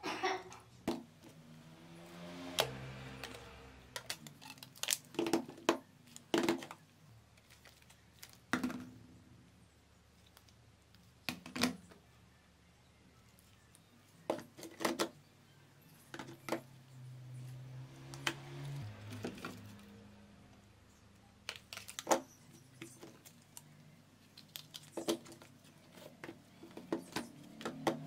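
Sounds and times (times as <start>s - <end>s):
plastic phone cases clacking: 3.2s - 8.9s, 14.3s - 15.2s, 21.4s - 28.0s.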